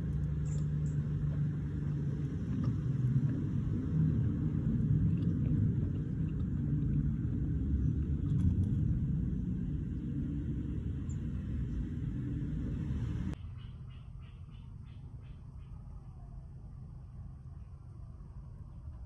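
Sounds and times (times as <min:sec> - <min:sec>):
low rumble: 0:00.0 - 0:13.4.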